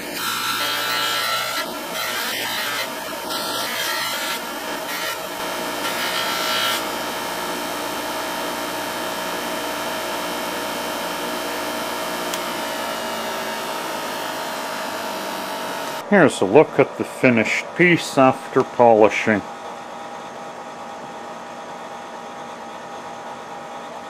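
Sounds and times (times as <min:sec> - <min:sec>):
bench grinder motor hum: 0:00.0 - 0:16.1.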